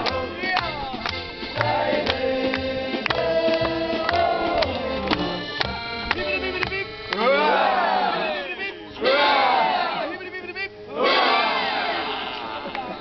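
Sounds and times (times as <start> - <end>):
listeners clapping along: 0.0 - 7.4, 12.2 - 13.0
band singing: 0.0 - 8.3
guitar and accordion playing: 0.0 - 12.0.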